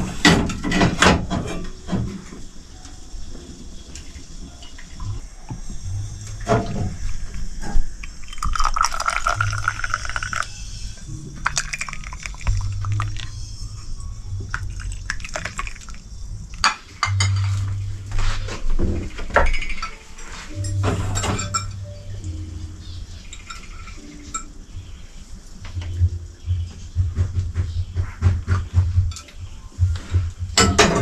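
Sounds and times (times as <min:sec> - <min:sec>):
tea pouring into a glass: 0:08.2 - 0:10.5, 0:11.4 - 0:13.4, 0:14.5 - 0:16.0
glassware clinking: 0:08.3 - 0:10.5, 0:16.6 - 0:17.6, 0:20.6 - 0:21.9.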